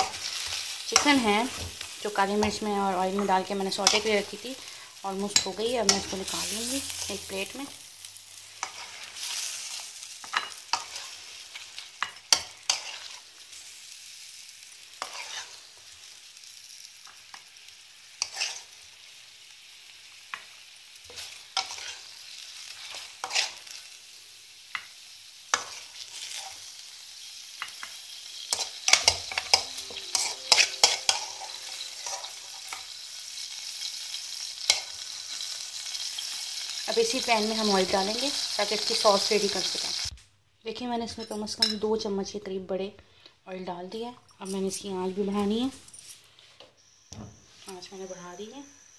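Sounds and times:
chicken frying in oil: 28.6s - 40.1s.

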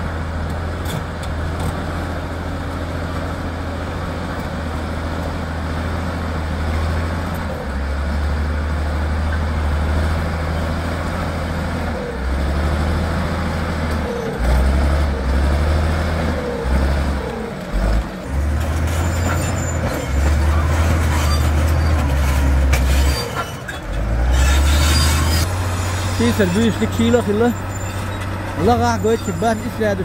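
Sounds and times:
bulldozer diesel engine under load: 0.0s - 30.0s
blade pushing rock and soil: 17.1s - 30.0s.

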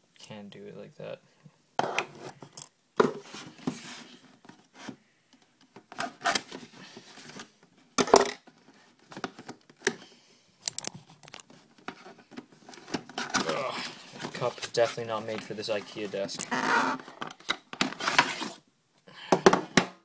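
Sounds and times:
box clicks and scrapes: 10.6s - 18.6s.

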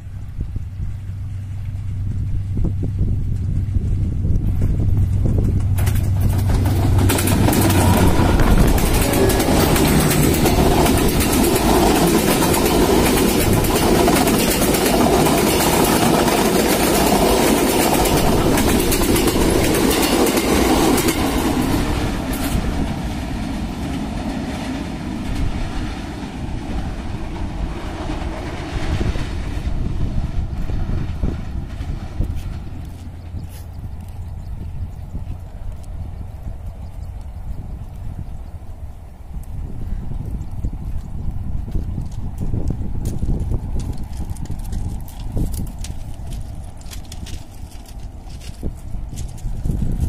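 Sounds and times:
train wheels clattering over rail joints: 4.4s - 35.4s, 41.7s - 50.0s.

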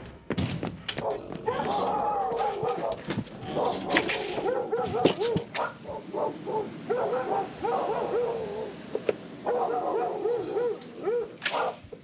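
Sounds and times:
sharp knocks: 0.0s - 1.6s.

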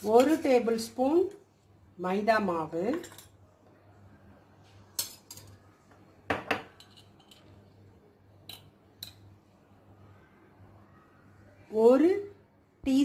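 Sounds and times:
metal spoon clinking against bowl: 6.6s - 7.6s.

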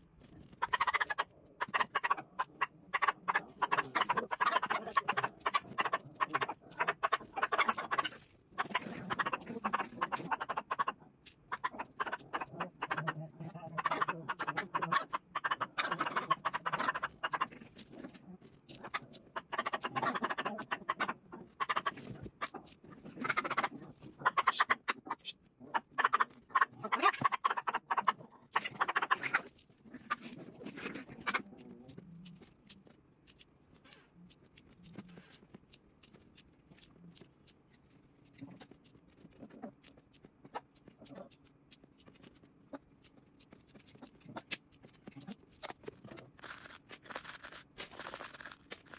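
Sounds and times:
plastic beads clicking and rattling: 31.8s - 48.9s.

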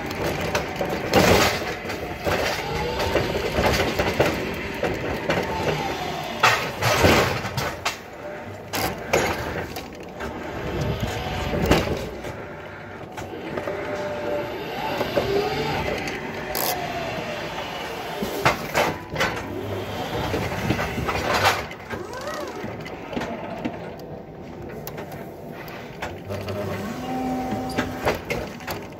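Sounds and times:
mechanical hum: 0.0s - 28.9s
electric motor whine: 13.2s - 18.4s, 26.2s - 28.3s.

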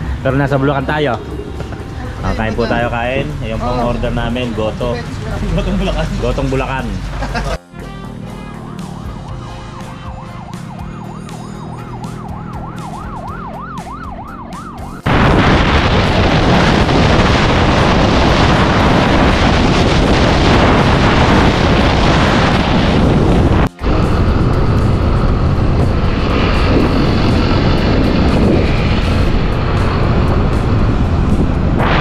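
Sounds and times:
loud steady rushing noise: 0.0s - 32.0s
siren wailing: 0.4s - 4.2s, 7.6s - 30.6s.

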